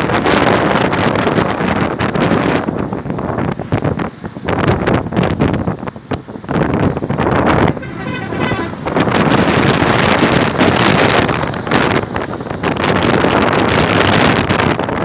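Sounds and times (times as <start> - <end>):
motorcycle engine and road noise: 0.0 - 15.0
truck passing: 0.0 - 15.0
wind buffeting microphone: 0.0 - 15.0.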